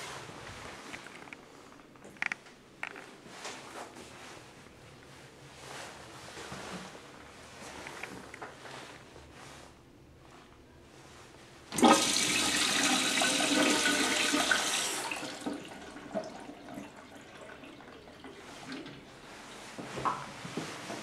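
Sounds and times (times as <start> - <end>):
urinal flushing: 11.7 - 21.0.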